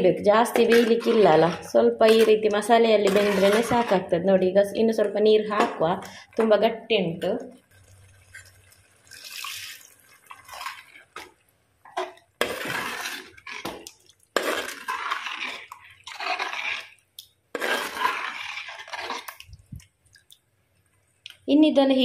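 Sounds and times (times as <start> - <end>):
metal spoon stirring in clay pot: 0.0 - 4.2, 4.8 - 19.9
water pouring into curry: 7.9 - 11.2.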